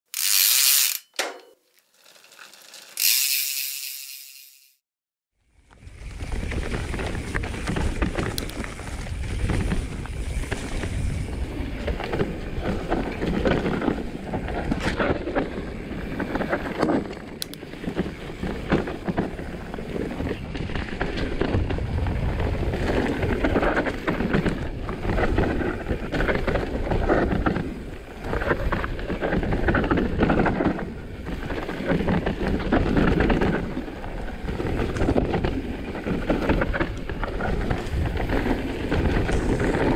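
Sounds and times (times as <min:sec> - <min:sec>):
bike rattle: 0:00.1 - 0:04.8
bike tyres rumbling over dirt: 0:05.6 - 0:39.9
wind buffeting microphone: 0:05.8 - 0:39.9.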